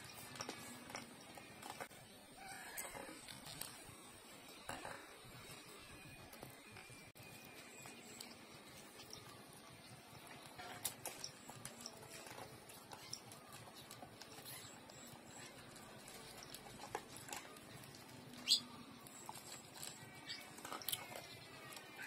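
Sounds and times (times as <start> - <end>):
dog eating dry kibble: 6.3 - 22.0.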